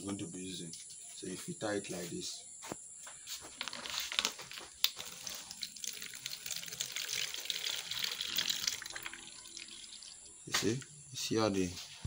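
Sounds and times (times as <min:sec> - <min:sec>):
liquid pouring and trickling: 0:03.8 - 0:10.5.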